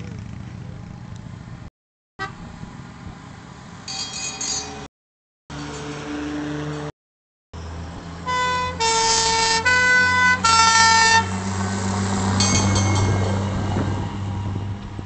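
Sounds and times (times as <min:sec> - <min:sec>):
fire engine two-tone siren: 0:08.2 - 0:11.4.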